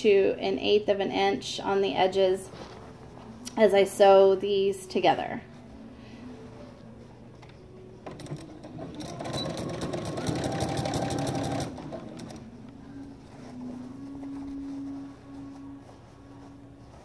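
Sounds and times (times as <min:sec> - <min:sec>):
sewing machine clattering: 0:08.0 - 0:12.4.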